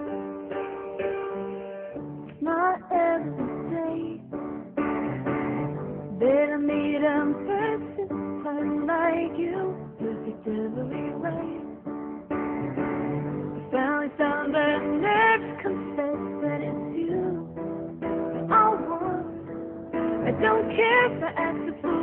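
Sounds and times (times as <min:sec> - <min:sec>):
woman singing a pop ballad: 0:02.3 - 0:04.4, 0:06.1 - 0:11.8, 0:13.6 - 0:17.7, 0:18.4 - 0:19.4, 0:20.2 - 0:22.0.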